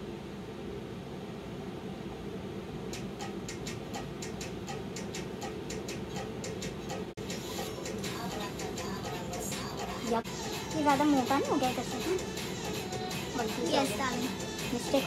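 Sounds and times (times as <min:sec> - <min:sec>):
low steady hum: 0:00.0 - 0:15.0
quick even ticking: 0:02.9 - 0:07.1.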